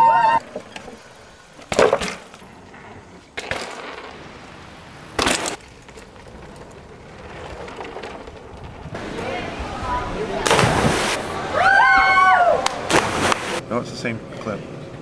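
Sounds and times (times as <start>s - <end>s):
bike wheels knocking wooden boards: 0.5s - 2.5s, 3.3s - 4.2s, 5.1s - 9.0s.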